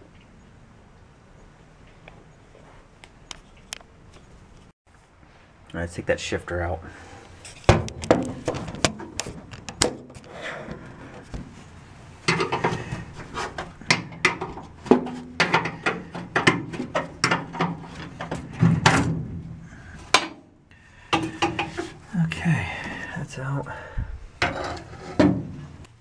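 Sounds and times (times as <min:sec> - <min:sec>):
metal knocks: 0:12.3 - 0:13.0, 0:13.8 - 0:20.5, 0:21.1 - 0:22.0.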